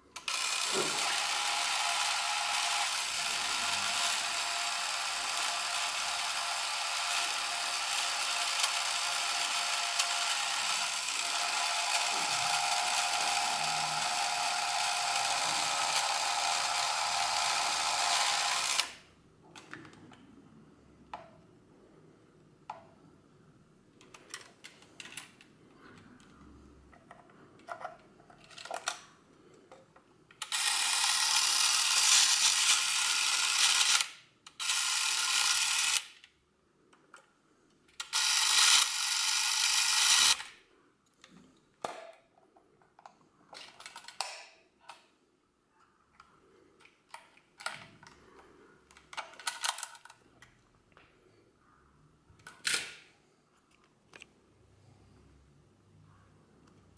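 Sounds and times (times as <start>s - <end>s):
camera motor running: 0.2s - 18.9s, 30.4s - 36.0s, 38.1s - 40.5s.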